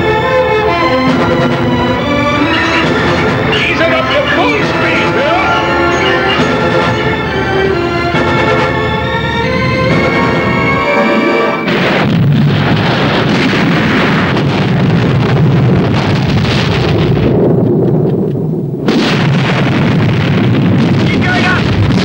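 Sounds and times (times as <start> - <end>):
orchestral film score: 0.0 - 12.1
loud explosion with rumble: 11.6 - 22.0.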